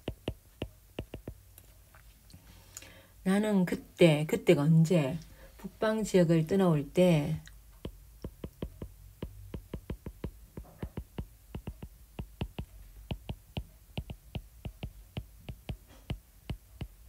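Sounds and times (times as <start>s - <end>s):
stylus tapping on glass screen: 0.0s - 1.4s, 7.8s - 17.0s.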